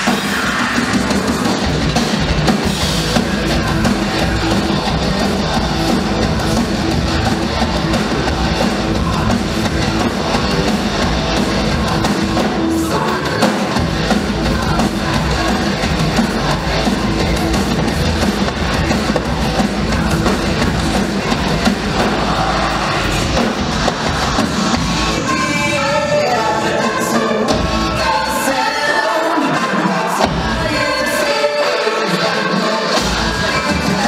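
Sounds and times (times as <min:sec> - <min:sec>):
acoustic drum kit: 0:00.0 - 0:25.8
electric guitar: 0:00.0 - 0:34.0.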